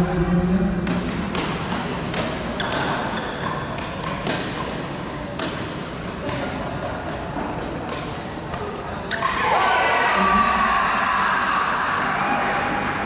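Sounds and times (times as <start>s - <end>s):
rackets hitting shuttlecock: 0.8s - 9.4s.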